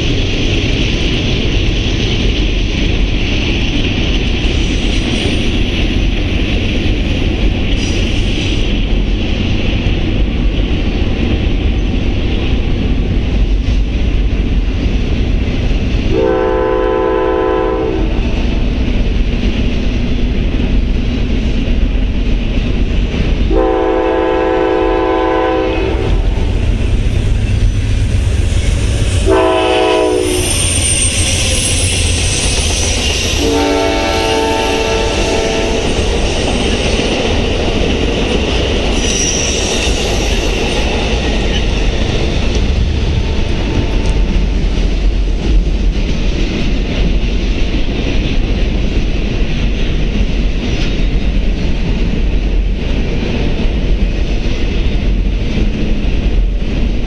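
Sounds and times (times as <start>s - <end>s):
freight train rumbling: 0.0s - 57.0s
train horn blowing: 16.1s - 18.3s, 23.5s - 26.4s, 29.0s - 31.0s, 33.3s - 35.9s, 43.1s - 44.5s.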